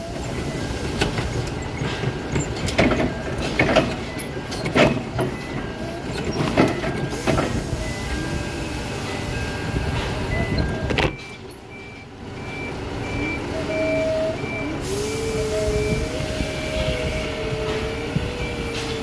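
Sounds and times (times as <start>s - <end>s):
forklift engine rumbling: 0.0s - 19.0s
forklift mast knocks and clunks: 1.0s - 7.6s, 10.0s - 11.8s.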